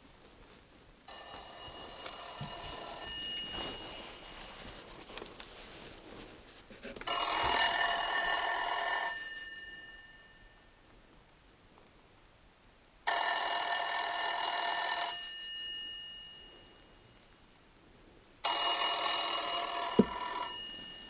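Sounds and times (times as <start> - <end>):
telephone bell ringing: 1.1 - 4.3, 7.1 - 10.6, 13.1 - 16.9, 18.4 - 21.0.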